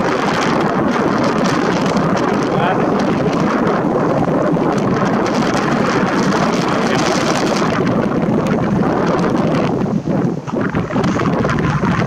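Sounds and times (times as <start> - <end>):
strong wind on microphone: 0.0 - 12.0.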